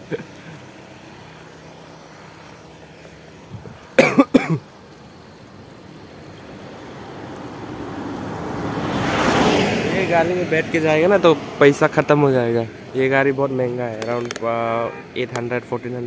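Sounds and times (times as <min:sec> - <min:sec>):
person coughing: 0:04.0 - 0:04.6
vehicle approaching: 0:04.7 - 0:16.0.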